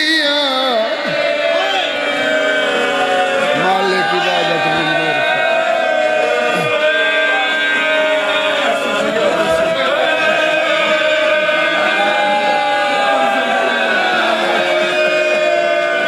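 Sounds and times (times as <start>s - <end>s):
man chanting mournfully: 3.5s - 5.4s.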